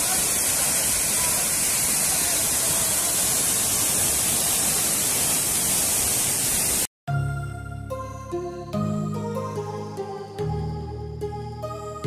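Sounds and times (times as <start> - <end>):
waterfall rushing: 0.0 - 6.9.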